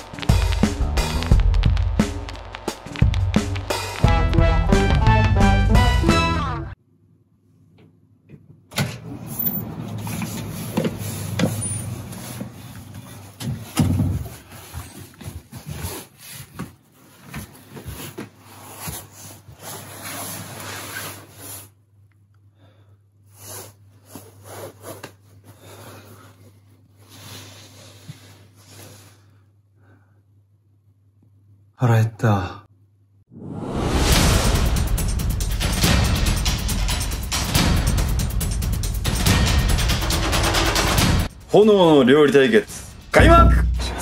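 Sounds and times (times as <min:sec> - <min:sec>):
low steady hum: 0:42.6 - 0:44.0.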